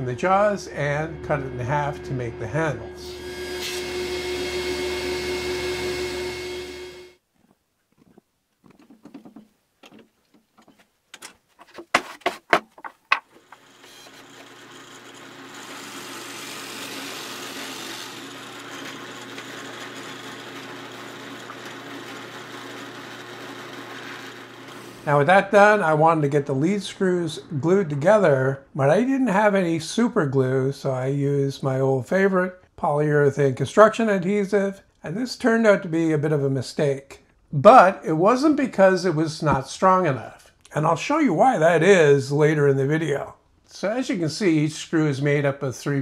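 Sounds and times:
table saw cutting wood: 0:00.0 - 0:07.2, 0:13.4 - 0:26.8
drilling: 0:02.9 - 0:07.2, 0:13.4 - 0:25.2
drill press motor running: 0:03.0 - 0:07.2, 0:13.4 - 0:25.1
sharp clicks and knocks: 0:08.0 - 0:13.7.

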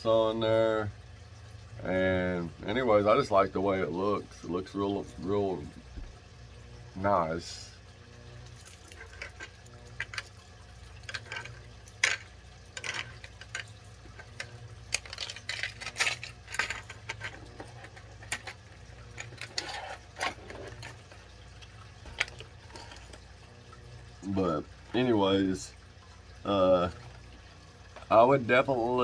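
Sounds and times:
low steady hum: 0:00.0 - 0:29.0
small hard items clattering: 0:08.6 - 0:10.3, 0:11.0 - 0:21.3, 0:22.0 - 0:23.3.

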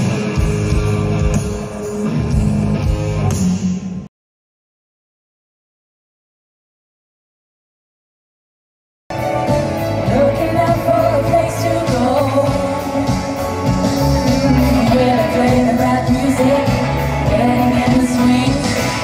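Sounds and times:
live pop band playing: 0:00.0 - 0:04.1, 0:09.1 - 0:19.0
women singing into microphones: 0:10.0 - 0:13.3, 0:14.4 - 0:19.0.

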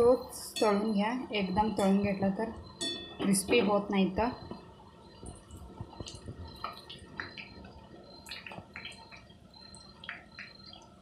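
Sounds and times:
dough sizzling in hot oil: 0:04.2 - 0:11.0
oil crackling and popping: 0:05.2 - 0:11.0.

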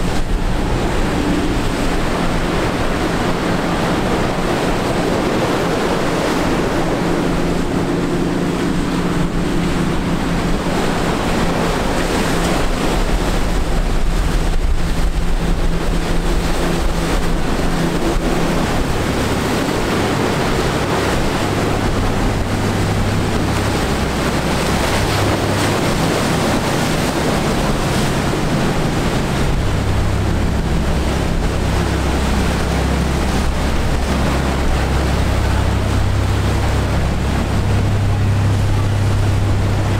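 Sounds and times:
boat engine drone: 0:00.0 - 0:39.9
deep boat engines drone: 0:00.0 - 0:39.9
surf breaking: 0:00.0 - 0:39.9
wind on microphone: 0:00.0 - 0:39.9.

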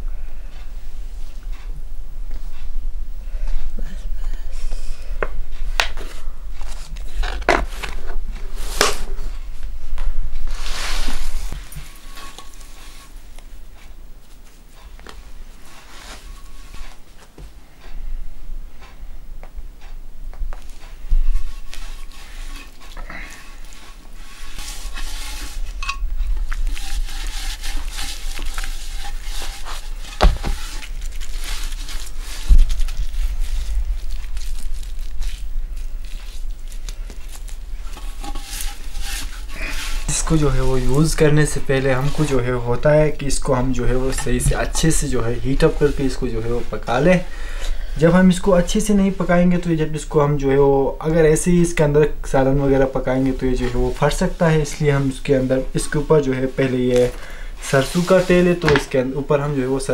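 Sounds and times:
cloth rubbing against stone: 0:10.4 - 0:14.7, 0:15.4 - 0:17.4, 0:20.7 - 0:47.3, 0:52.9 - 0:58.8
dull thumps: 0:20.3 - 0:34.4.

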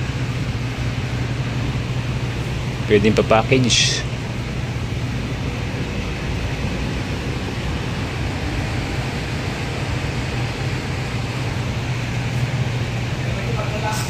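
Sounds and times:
constant noise: 0:00.0 - 0:14.0
low room hum: 0:00.0 - 0:14.0.

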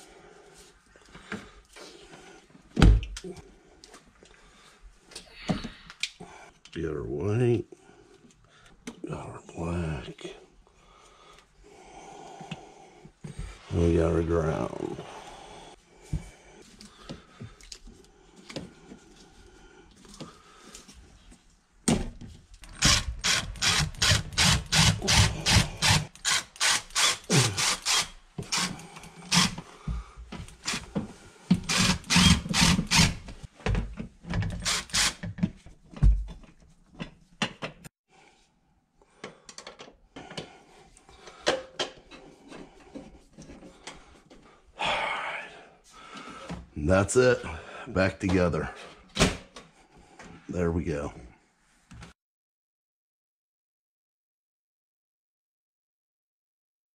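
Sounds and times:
screws turned by hand clicking: 0:22.6 - 0:29.6, 0:31.6 - 0:33.3, 0:34.4 - 0:35.3
cordless drill pulsing: 0:22.7 - 0:29.6, 0:31.6 - 0:33.2, 0:34.6 - 0:35.2.

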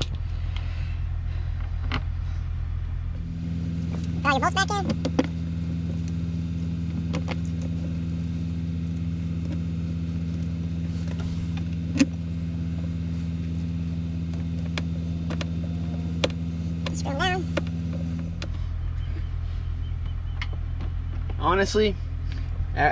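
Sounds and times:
truck engine idling: 0:00.0 - 0:22.9.

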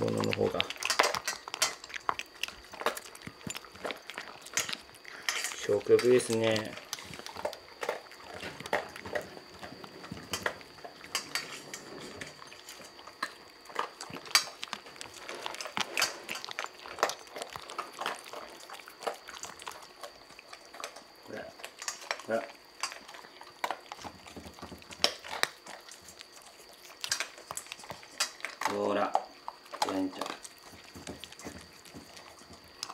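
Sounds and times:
cats crunching food: 0:00.0 - 0:32.9
teeth clinking on bowls: 0:00.0 - 0:32.9.

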